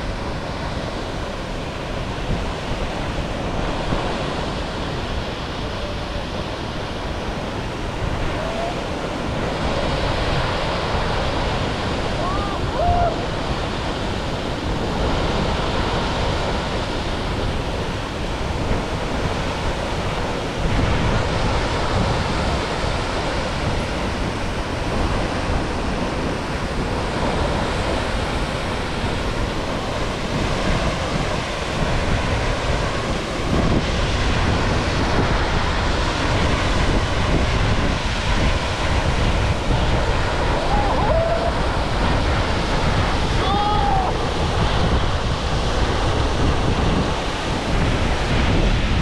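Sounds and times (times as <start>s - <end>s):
wind buffeting microphone: 0.0s - 49.0s
waterfall rushing onto rocks: 33.7s - 45.0s.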